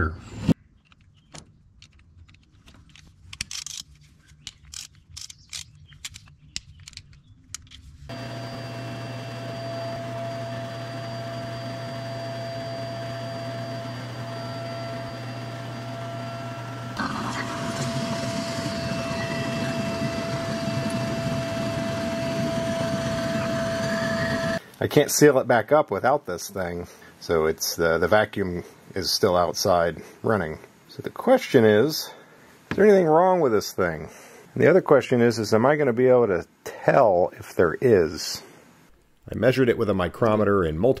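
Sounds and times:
vacuum cleaner humming: 8.1s - 24.6s.

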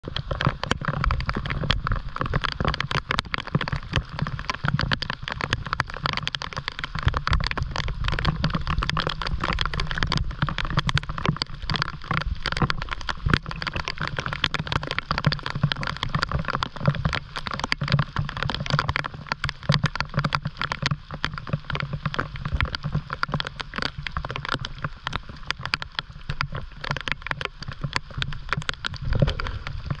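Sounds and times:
heavy rain on water: 0.0s - 30.0s.

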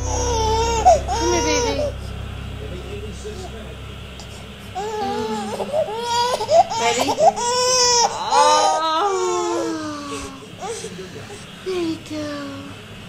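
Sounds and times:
infant crying: 4.8s - 10.8s.

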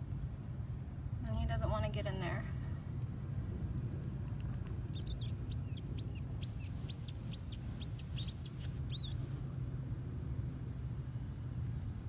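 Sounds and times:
mouse pup squeaking: 4.9s - 9.2s.

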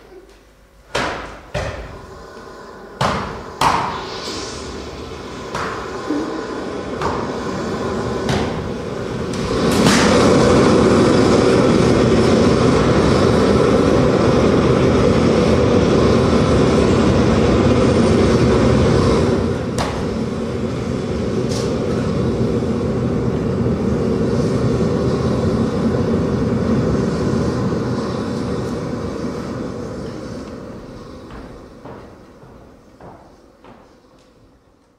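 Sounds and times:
sharp knocks: 0.9s - 2.0s
rumbling noise drone: 1.2s - 34.8s.

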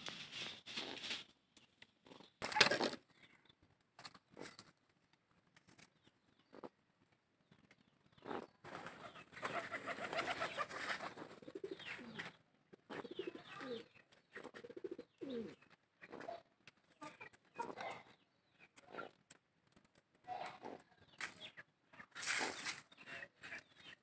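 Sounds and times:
scratching: 0.0s - 3.0s
pigeon cooing: 8.2s - 16.5s.

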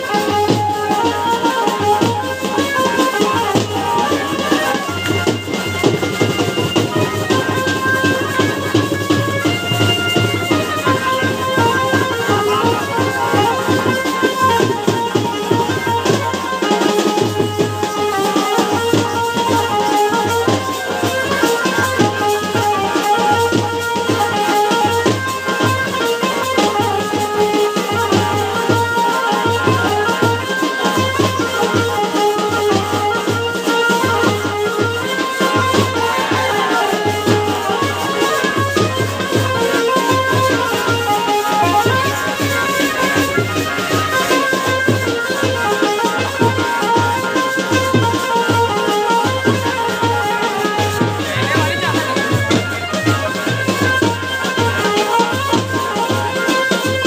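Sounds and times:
barrel drum: 0.0s - 57.0s
held melodic tones: 0.0s - 57.0s
side drum beaten with sticks: 0.0s - 57.0s
melody of long held notes: 0.2s - 19.6s.

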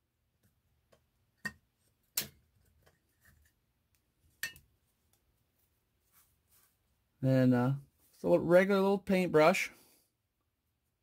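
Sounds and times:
faint handling noises: 1.8s - 7.1s.

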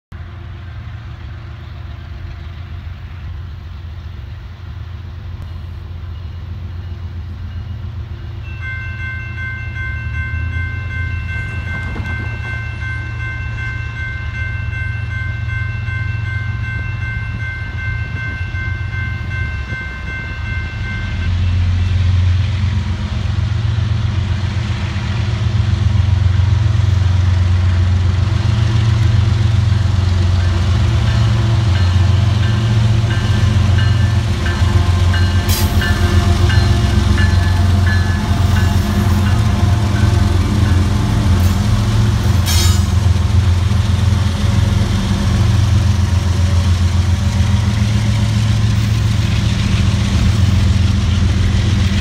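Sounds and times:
diesel locomotives rumbling: 0.1s - 52.0s.

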